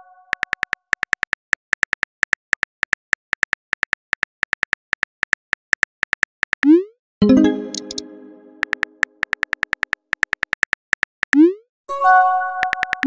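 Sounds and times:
phone keyboard tap clicks: 0:12.6 - 0:13.0.

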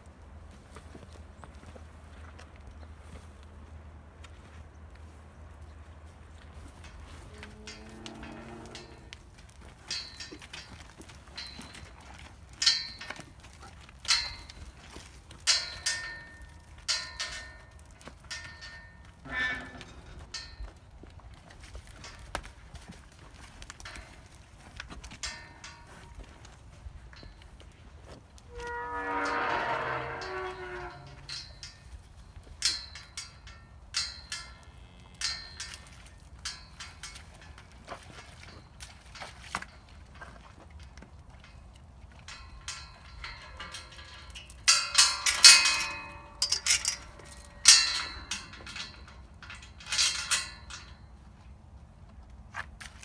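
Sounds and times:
riding gear clinking: 0:06.6 - 0:53.0
metal gate clanking: 0:07.6 - 0:09.1, 0:15.4 - 0:17.7, 0:18.3 - 0:20.6, 0:28.5 - 0:31.9, 0:42.3 - 0:51.0.

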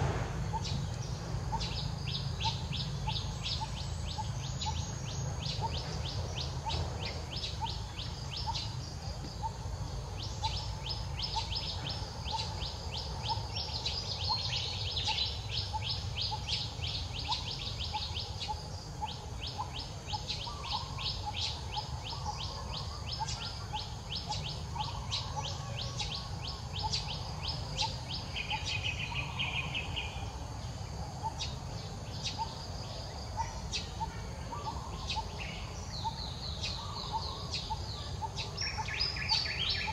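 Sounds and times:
steady low rumble: 0:00.0 - 0:22.2.

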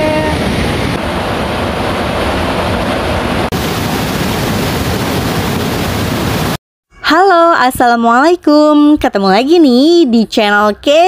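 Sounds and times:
stream rushing over boulders: 0:01.1 - 0:06.6.

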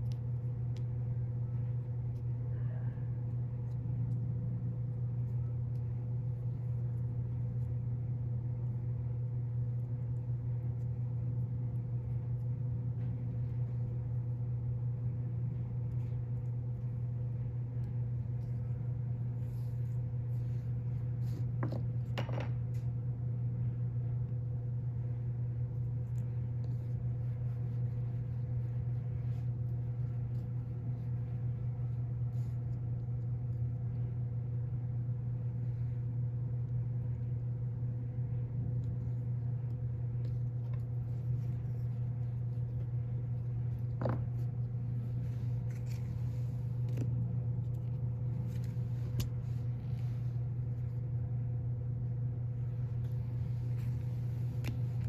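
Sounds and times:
low mechanical hum: 0:00.0 - 0:55.0.

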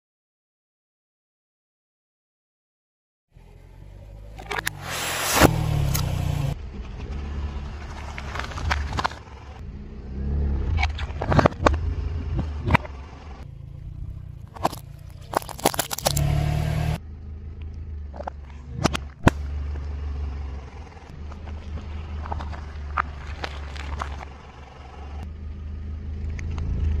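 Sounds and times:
tyre and engine rumble: 0:03.3 - 0:27.0
objects crushed under tyre: 0:14.4 - 0:16.4, 0:21.3 - 0:24.4.

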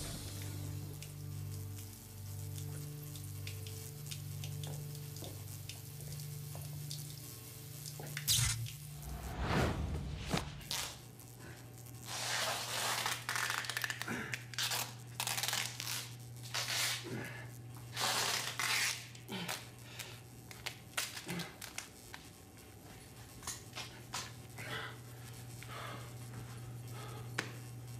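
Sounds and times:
steady low hum: 0:00.0 - 0:12.2, 0:19.2 - 0:27.9.

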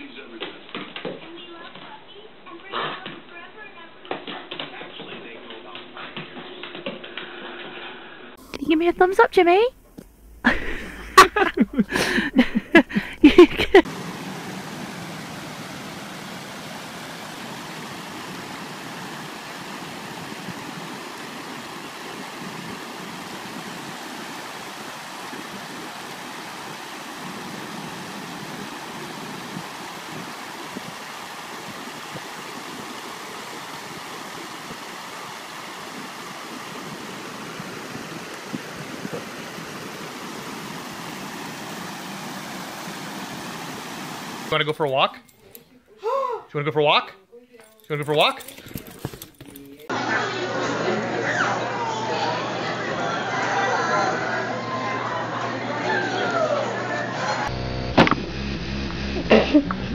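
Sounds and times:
stream running over rocks: 0:11.4 - 0:44.6.

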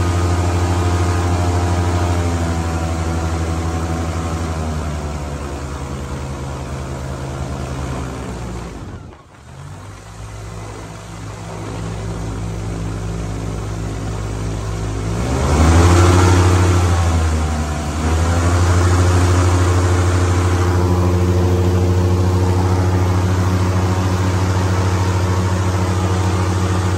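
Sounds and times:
airboat engine and propeller: 0:00.0 - 0:26.9.

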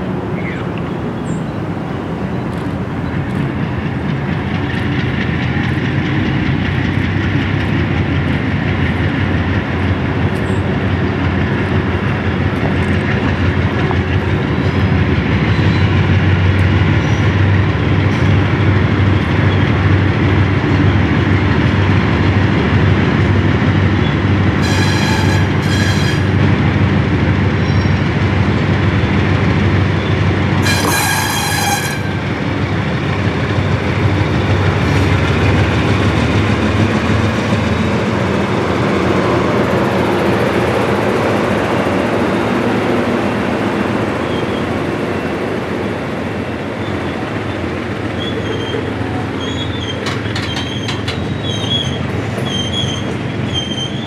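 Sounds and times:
locomotive engines droning: 0:00.0 - 0:54.0
high-pitched squeals: 0:24.6 - 0:26.4
wheels clicking over rails: 0:47.9 - 0:54.0.

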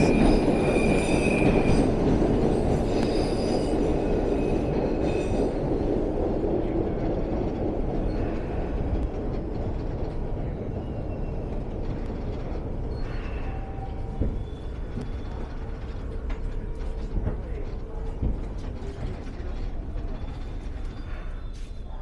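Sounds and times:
high wheel squeal: 0:00.0 - 0:06.1, 0:12.8 - 0:16.1, 0:19.4 - 0:22.0
subway wheels rumbling on rail: 0:00.0 - 0:22.0.

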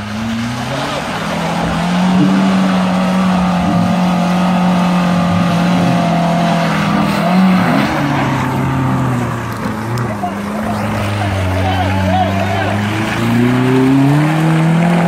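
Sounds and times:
engine revving under load: 0:00.0 - 0:15.0.

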